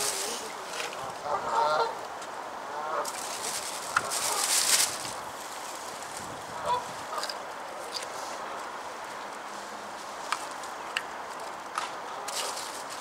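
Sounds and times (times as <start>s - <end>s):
goose honking: 1.2s - 2.0s, 2.7s - 3.1s, 6.6s - 7.2s.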